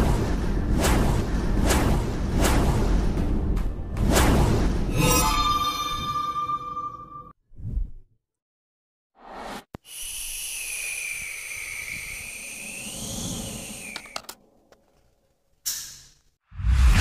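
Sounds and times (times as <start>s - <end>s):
hiss: 9.8s - 14.2s
whistling tone: 9.8s - 14.2s.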